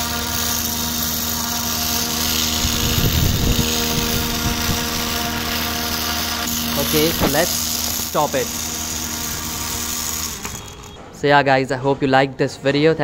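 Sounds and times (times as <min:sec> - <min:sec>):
propeller air rush: 0:00.0 - 0:11.0
high motor whine: 0:00.0 - 0:11.2.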